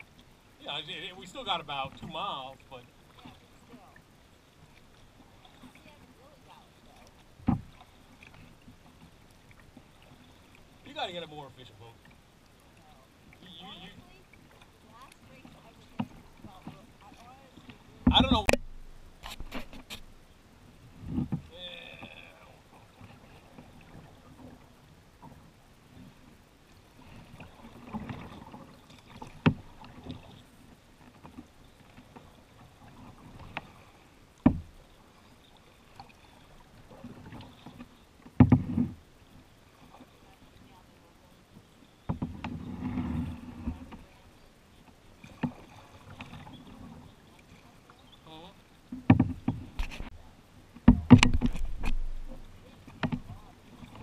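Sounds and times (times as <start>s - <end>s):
paddle knocks and drips: 1.0s - 20.2s, 20.9s - 40.8s, 41.5s - 54.0s
paddle stroke thump: 7.4s - 7.8s, 17.6s - 20.1s, 34.4s - 34.8s, 37.0s - 39.0s, 48.9s - 50.1s, 50.8s - 54.0s
paddle knocking on kayak hull: 7.4s - 10.2s, 13.9s - 20.0s, 27.4s - 30.3s, 34.4s - 34.9s, 36.8s - 39.0s, 48.9s - 54.0s.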